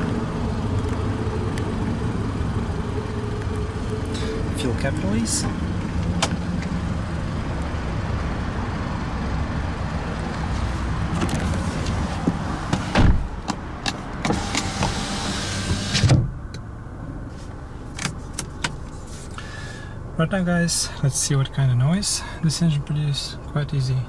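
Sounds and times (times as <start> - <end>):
car engine idling: 0.0 - 16.0, 16.6 - 24.0
thump: 12.2 - 13.3
power window motor whine: 14.2 - 16.2.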